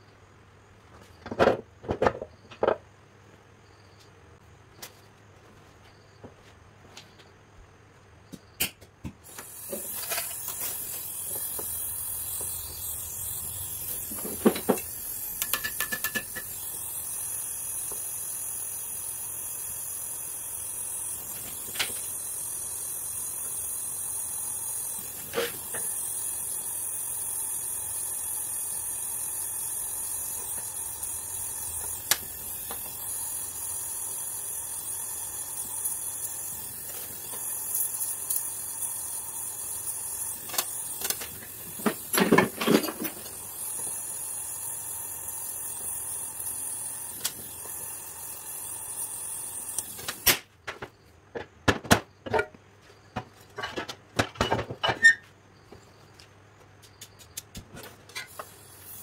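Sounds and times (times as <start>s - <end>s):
gas torch flame hissing: 9.2s - 50.5s, 57.6s - 59.0s.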